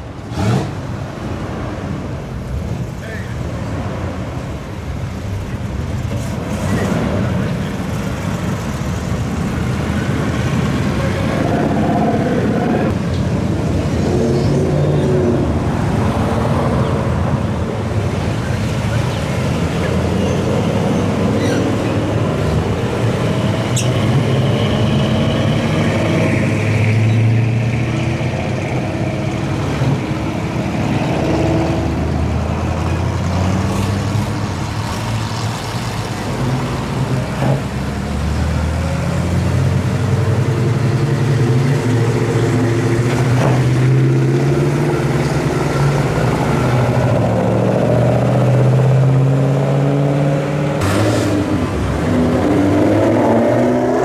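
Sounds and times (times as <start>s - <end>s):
cars and trucks driving past: 0.0s - 54.0s.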